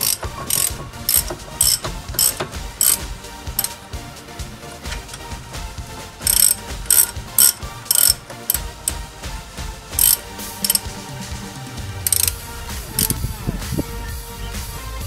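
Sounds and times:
socket ratchet clicking: 0:00.0 - 0:03.8, 0:06.2 - 0:09.0, 0:10.0 - 0:10.8, 0:12.0 - 0:12.4, 0:13.0 - 0:13.2.

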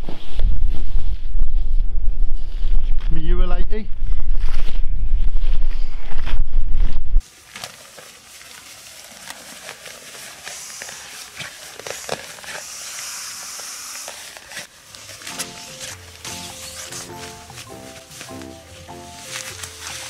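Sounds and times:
nylon fabric rustling: 0:07.2 - 0:20.0.

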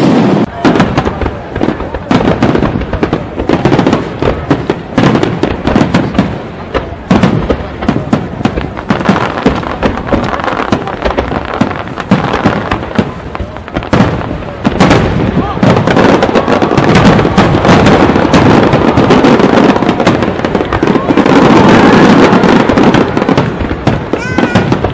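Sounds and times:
fireworks bursts and crackles: 0:00.0 - 0:24.9.

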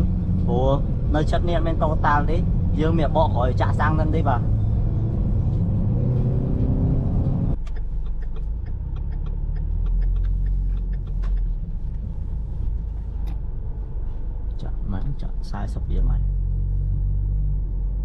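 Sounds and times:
car engine deep rumble: 0:00.0 - 0:18.0
light ticks: 0:07.6 - 0:12.1.

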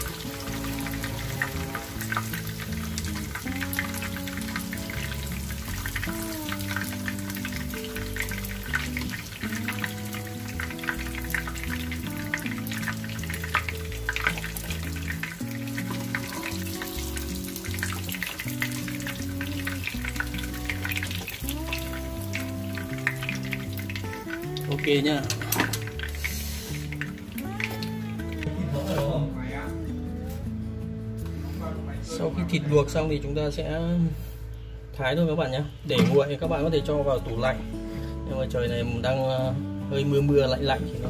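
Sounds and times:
pork fat frying in oil: 0:00.0 - 0:29.1
background music with held notes: 0:00.0 - 0:41.0.

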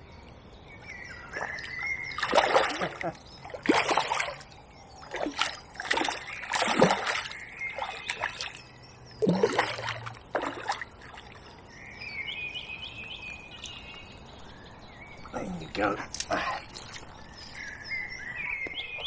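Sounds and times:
bird chirping: 0:00.0 - 0:19.0
fish splashing at surface: 0:03.6 - 0:04.4, 0:05.1 - 0:08.6, 0:09.2 - 0:11.4.

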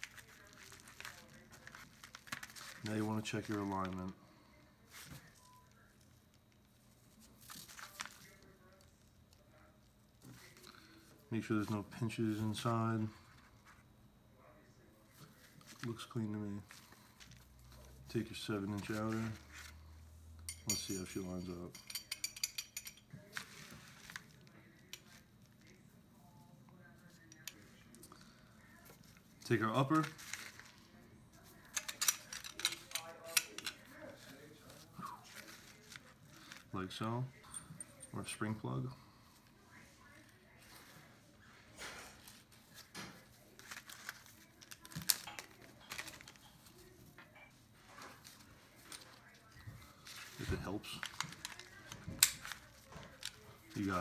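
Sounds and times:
small metal parts clicking and rattling: 0:20.5 - 0:24.2, 0:31.6 - 0:34.0, 0:43.0 - 0:46.7, 0:50.0 - 0:54.0
metal parts clicking: 0:31.7 - 0:33.8.

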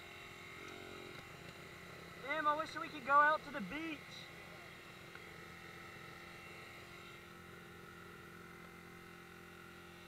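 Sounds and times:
dirt bike engine humming: 0:00.0 - 0:10.0.

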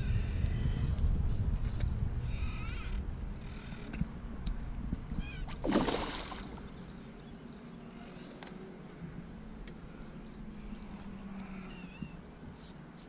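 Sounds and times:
loud splash on water: 0:05.6 - 0:06.6.

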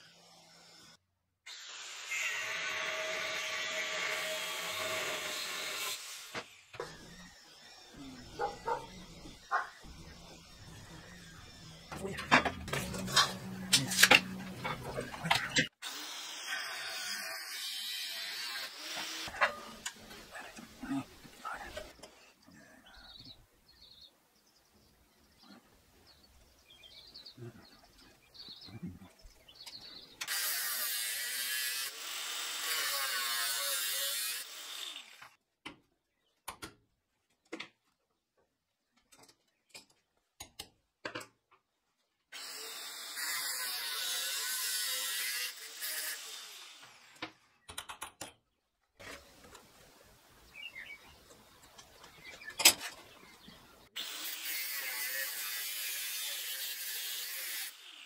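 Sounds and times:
angle grinder cutting steel: 0:00.0 - 0:21.1, 0:30.2 - 0:35.4, 0:42.4 - 0:47.2, 0:54.0 - 0:58.0.

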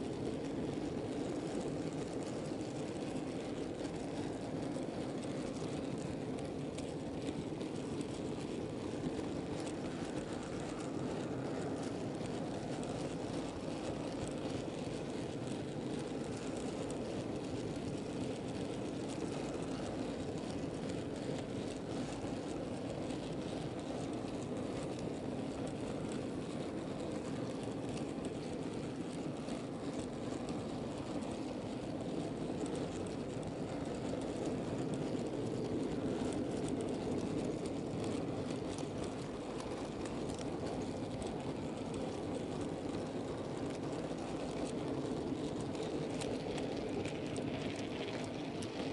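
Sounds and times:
model train wheels rumbling on rails: 0:00.0 - 0:48.9
faint ticks: 0:00.1 - 0:48.9.

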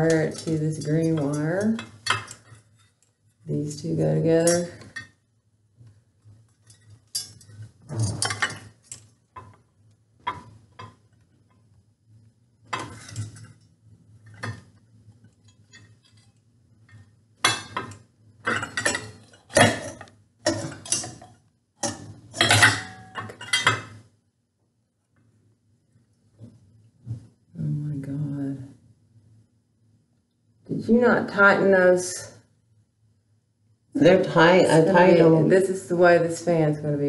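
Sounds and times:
metal fan hardware clinking and rattling: 0:00.0 - 0:05.2, 0:06.6 - 0:09.6, 0:12.7 - 0:13.6, 0:16.9 - 0:24.0.

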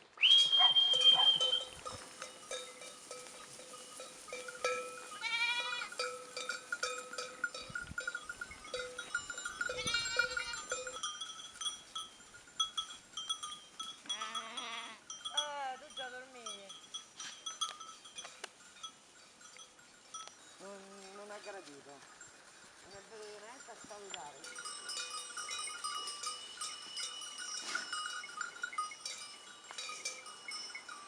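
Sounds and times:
sheep bells clinking: 0:00.2 - 0:31.0
sheep bleating: 0:05.1 - 0:06.0, 0:09.7 - 0:10.7, 0:14.1 - 0:15.0.

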